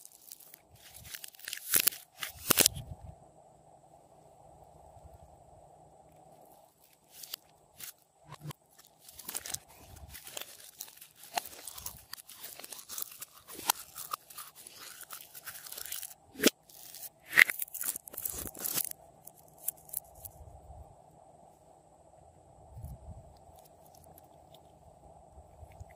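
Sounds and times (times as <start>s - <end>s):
slime crackling and popping: 0.0s - 2.7s, 8.8s - 18.9s.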